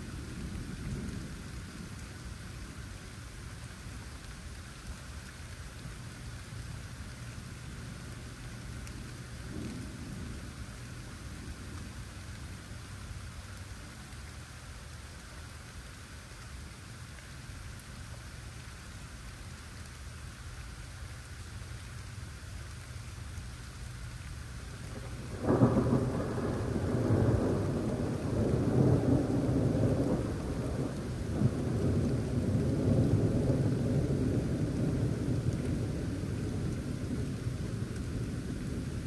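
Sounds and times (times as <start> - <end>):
steady rain falling: 0.0 - 39.0
thunder rumbling: 24.9 - 39.0.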